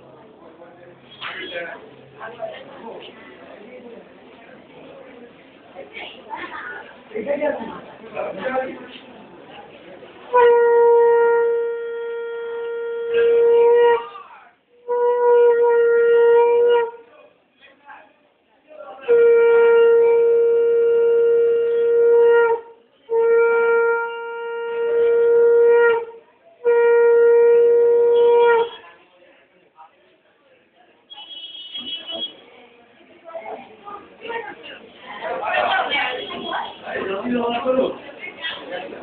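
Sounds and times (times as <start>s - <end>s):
conch shell blasts: 10.3s - 14.2s, 14.8s - 17.0s, 19.0s - 28.9s.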